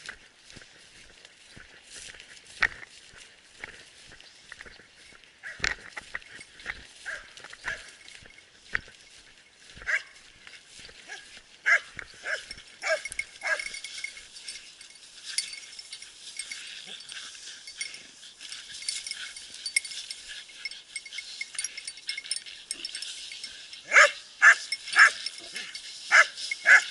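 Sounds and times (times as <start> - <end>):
small dogs barking and yapping: 7.0 - 8.0, 11.0 - 26.9.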